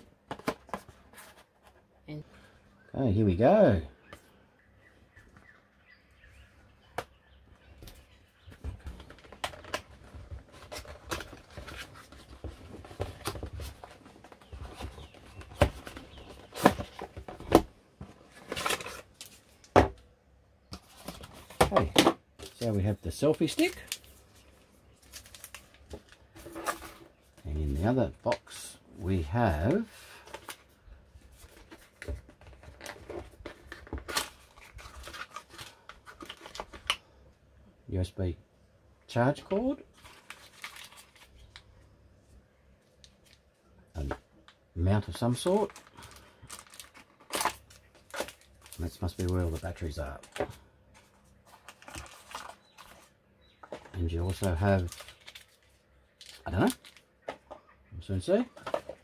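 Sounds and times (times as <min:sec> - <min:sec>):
packaging rustling: 0:08.7 - 0:19.7, 0:20.8 - 0:27.2, 0:31.3 - 0:37.0, 0:39.5 - 0:41.6, 0:45.4 - 0:57.5.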